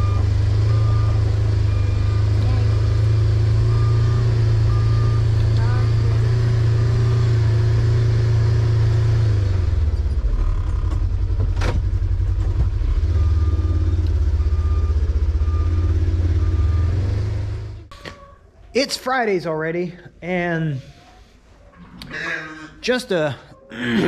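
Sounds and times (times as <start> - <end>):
warning beeper short beeps: 0.0 - 6.4
vehicle engine heard from cab: 0.0 - 18.0.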